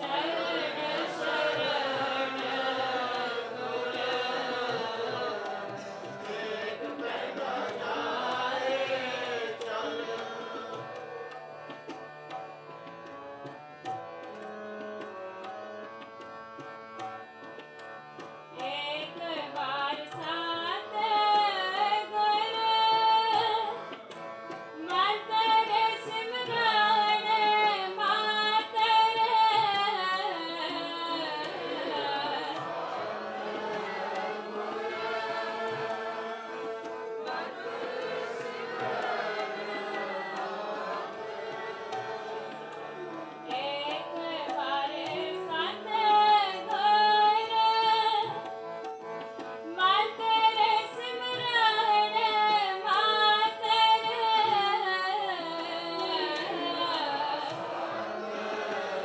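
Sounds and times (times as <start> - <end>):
harmonium: 0.0 - 59.0
tabla drumming: 0.0 - 59.0
woman singing a hymn: 24.9 - 32.5, 43.6 - 48.2, 49.8 - 57.4.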